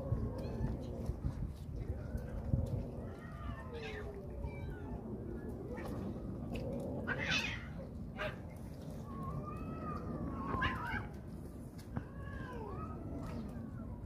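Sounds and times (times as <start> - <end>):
low rumble: 0.0 - 14.0
cats meowing: 7.0 - 7.8, 9.2 - 11.2.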